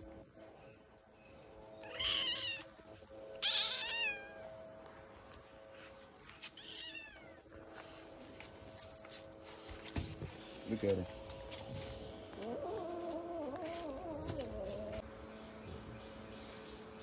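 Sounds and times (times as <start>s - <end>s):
cat meowing: 3.4s - 4.4s, 6.6s - 7.4s.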